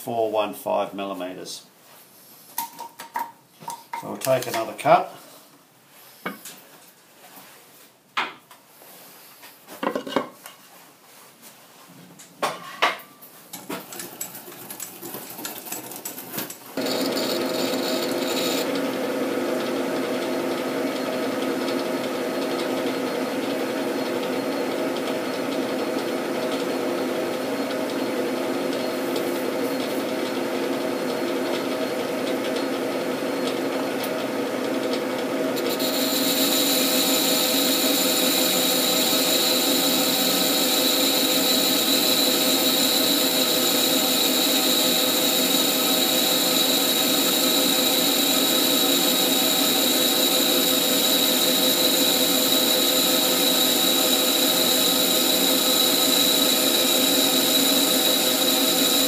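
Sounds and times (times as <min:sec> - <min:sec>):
boring bar cutting metal: 0:16.8 - 0:18.7, 0:35.6 - 0:59.0
metal lathe humming: 0:16.8 - 0:19.0, 0:33.4 - 0:59.0.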